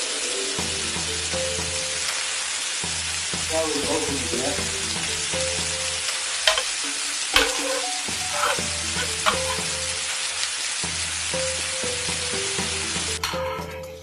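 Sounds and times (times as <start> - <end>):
eggs sizzling in frying pan: 0.0 - 14.0
ladle clinking against pan: 6.5 - 6.8, 7.4 - 9.7
ladle scraping pan: 6.5 - 9.9.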